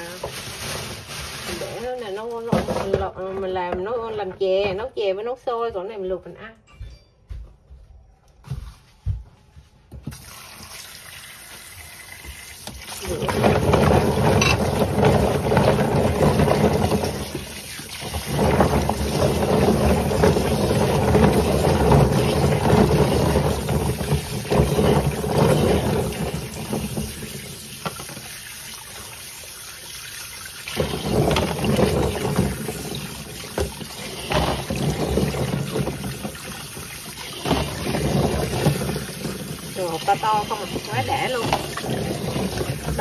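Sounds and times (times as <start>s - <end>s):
tap running into colander: 10.1s - 43.0s
hands rubbing nuts in water: 12.8s - 29.2s, 30.7s - 43.0s.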